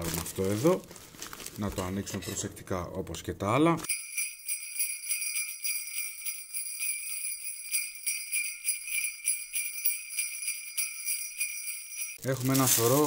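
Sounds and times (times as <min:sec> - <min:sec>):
jingle bells shaking: 0:03.9 - 0:13.0.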